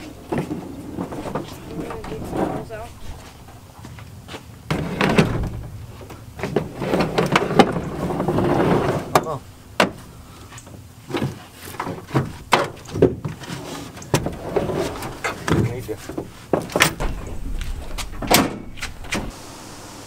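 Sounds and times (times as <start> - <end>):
metal hull scraping: 0.0 - 3.7, 4.7 - 10.2, 13.3 - 19.6
boat banging against truck: 4.7 - 10.0, 14.1 - 19.3.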